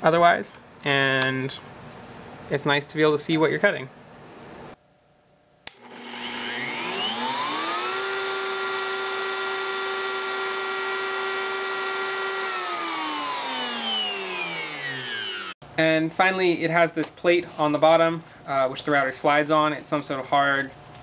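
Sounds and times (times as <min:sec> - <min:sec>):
router motor whine: 0:05.7 - 0:15.6.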